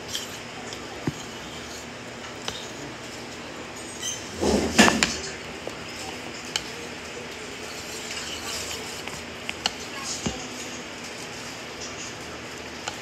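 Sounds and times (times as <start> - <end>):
chopsticks clicking: 6.5 - 6.8.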